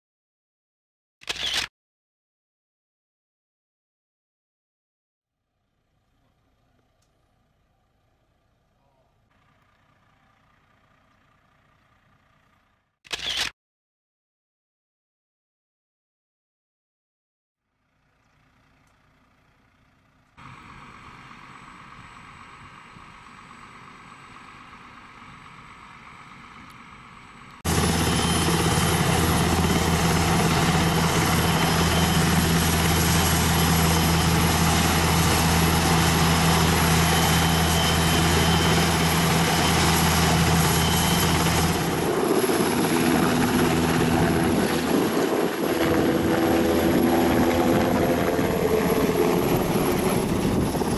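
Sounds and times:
helicopter rotor drone: 18.4 - 50.9
high turbine whine: 20.4 - 50.9.

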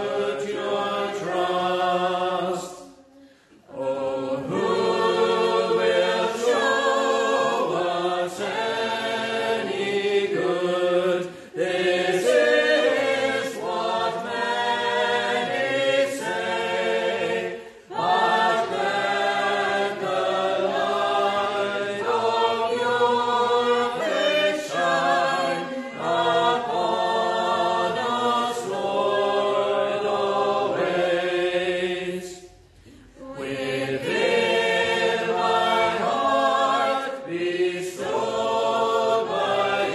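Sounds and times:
congregation singing a psalm: 0.0 - 39.9.

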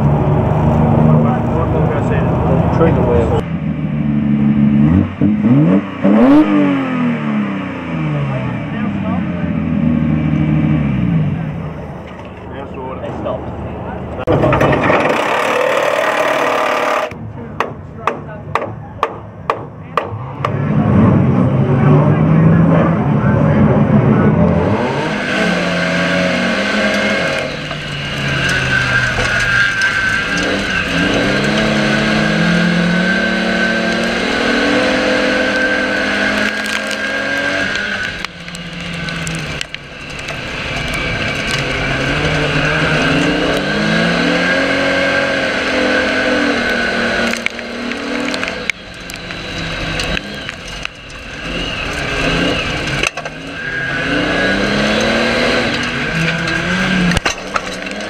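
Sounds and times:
race car engine revving: 0.0 - 17.2, 19.8 - 58.0
sharp knocks: 14.3 - 20.6.

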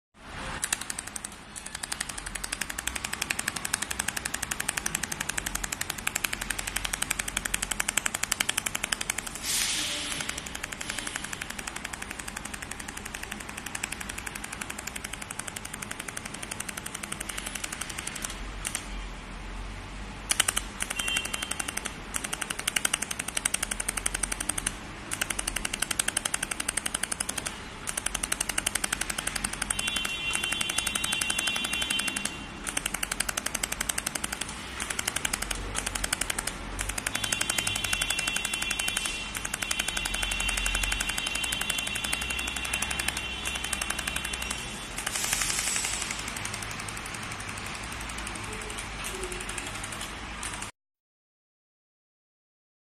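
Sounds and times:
laser welder ticking: 0.6 - 19.0, 20.2 - 50.7.

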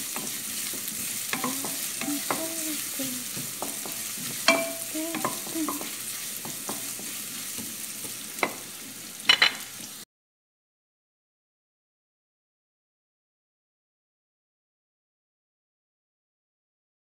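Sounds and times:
spatula scraping a wok: 0.0 - 9.6
vegetables sizzling in hot oil: 0.0 - 10.1
spatula knocking against pan: 0.1 - 2.6, 3.3 - 8.6.

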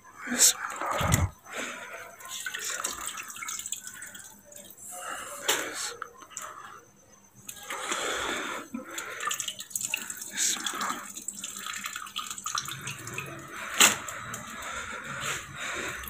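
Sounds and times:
wet squelching and splashing: 8.8 - 16.0.

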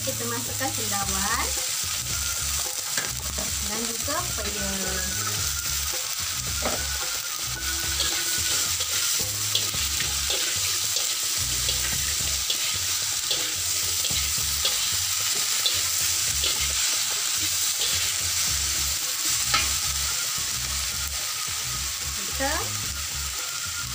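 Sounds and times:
food sizzling in a wok: 0.0 - 23.9
metal spatula scraping a pan: 6.6 - 20.3.

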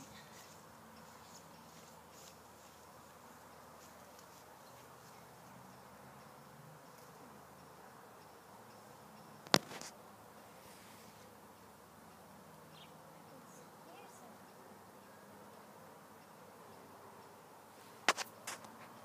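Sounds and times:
sharp click: 9.4 - 10.0, 18.0 - 18.8.

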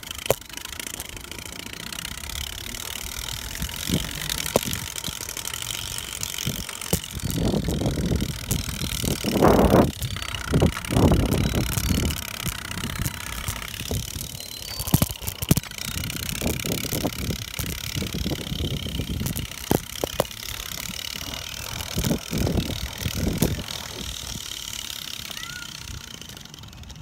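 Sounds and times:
bicycle tyre rumble: 0.0 - 27.0
wind buffeting microphone: 6.2 - 24.5.

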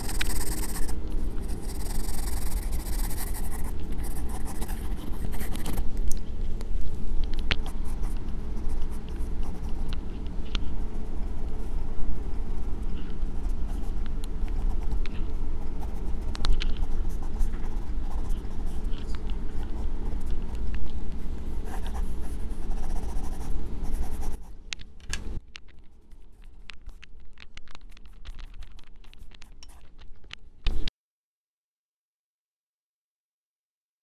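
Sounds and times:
pencil scratching on paper: 0.0 - 5.9, 7.6 - 9.9, 10.7 - 20.6, 21.6 - 24.5
low steady rumble: 0.0 - 30.9.

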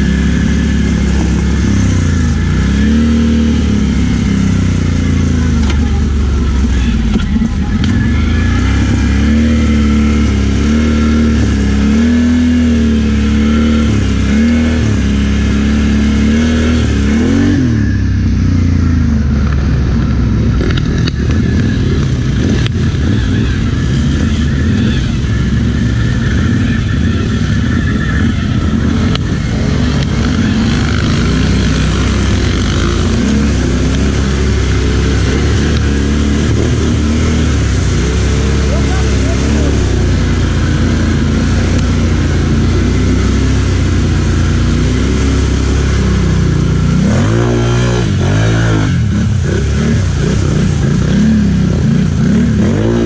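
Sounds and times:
atv engine revving: 0.0 - 53.0.

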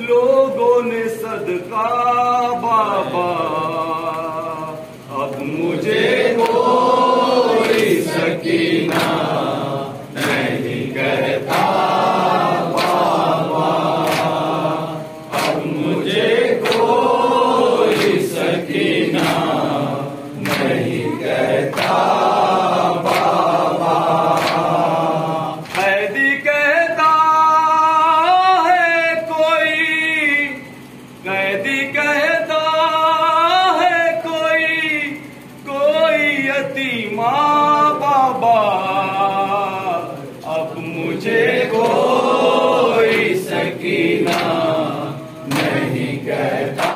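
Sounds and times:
men chanting together: 0.0 - 30.6, 31.2 - 46.9
chest-beating slaps: 8.8 - 9.3, 10.2 - 10.6, 12.6 - 14.5, 15.3 - 17.1, 17.8 - 18.5, 19.2 - 19.6, 20.4 - 22.2, 23.0 - 23.5, 24.3 - 24.8, 44.2 - 44.7, 45.4 - 46.1.

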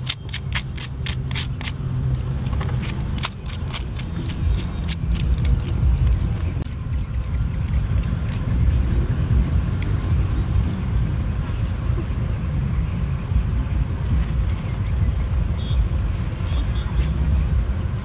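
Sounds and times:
low rumble: 0.0 - 18.0.

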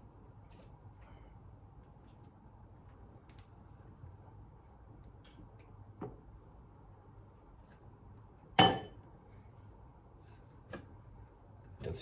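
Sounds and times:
kitchenware clinking: 8.6 - 9.0.

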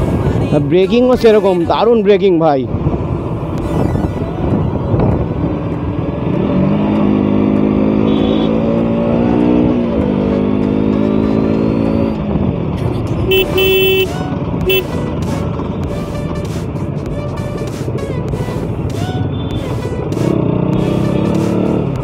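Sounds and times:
road and wind noise: 0.0 - 22.0
vehicle horn: 8.0 - 8.7, 13.2 - 14.9.

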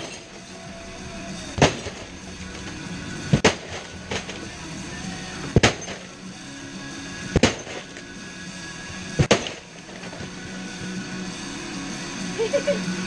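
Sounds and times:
background music: 0.0 - 13.0
heavy blows smashing a tv: 1.5 - 4.6, 5.4 - 6.2, 7.3 - 8.1, 9.1 - 10.4.

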